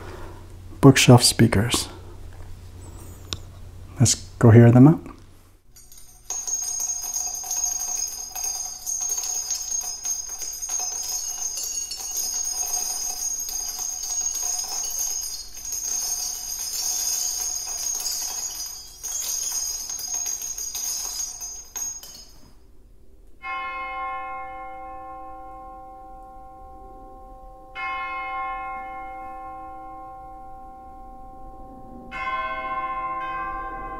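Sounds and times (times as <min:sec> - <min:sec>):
metal shell casings clinking: 0:05.7 - 0:22.6
church bell ringing: 0:23.4 - 0:33.9.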